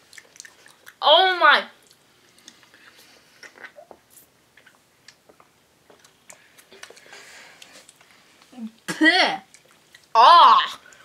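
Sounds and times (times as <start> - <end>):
faint chewing: 0.0 - 1.0, 1.8 - 10.2, 10.8 - 11.0
mouth clicks and smacks: 0.0 - 1.0, 1.8 - 8.9, 9.5 - 10.1.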